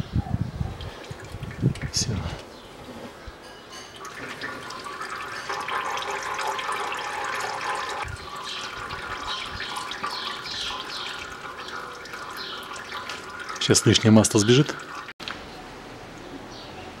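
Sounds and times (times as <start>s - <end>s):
oil trickling: 0.8s - 2.4s, 3.9s - 15.2s.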